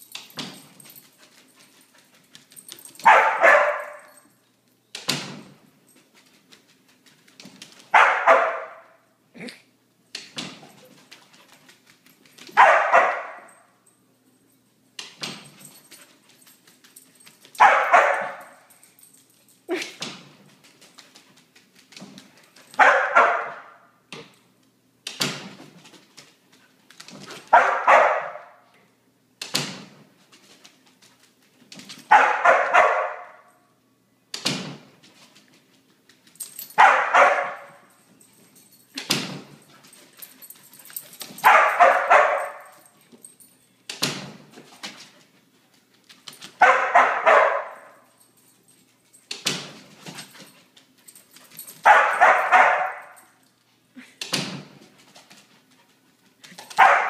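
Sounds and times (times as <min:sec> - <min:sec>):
dog barking: 0:03.0 - 0:04.2, 0:07.9 - 0:09.0, 0:12.6 - 0:13.5, 0:17.6 - 0:18.6, 0:22.8 - 0:23.8, 0:27.5 - 0:28.6, 0:32.1 - 0:33.5, 0:36.8 - 0:37.8, 0:41.4 - 0:42.8, 0:46.6 - 0:48.0, 0:51.8 - 0:53.3, 0:56.8 - 0:57.0.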